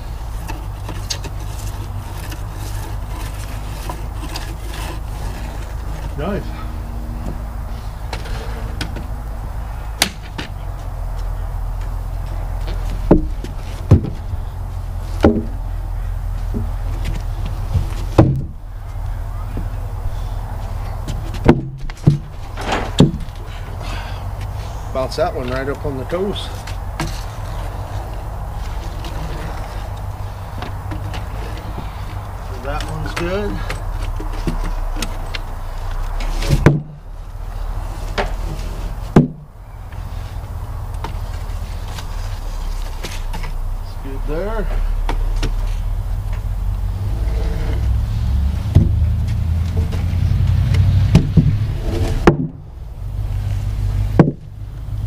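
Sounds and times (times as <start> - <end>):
heavy wooden thuds: 0.0 - 24.7, 25.3 - 37.2, 37.8 - 53.0, 53.8 - 55.0
steady low hum: 0.0 - 55.0
wood thumping on wood: 12.9 - 14.3, 15.2 - 15.6, 17.7 - 18.6, 21.1 - 23.4, 36.4 - 37.0, 39.1 - 39.4, 48.7 - 49.1, 51.1 - 51.6, 52.2 - 52.6, 54.1 - 54.4.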